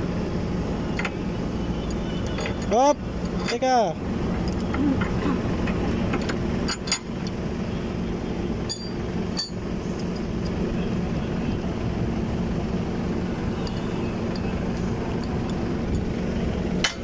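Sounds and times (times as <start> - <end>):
low machine hum: 0.0 - 17.0
sharp metallic clinks: 8.6 - 10.3.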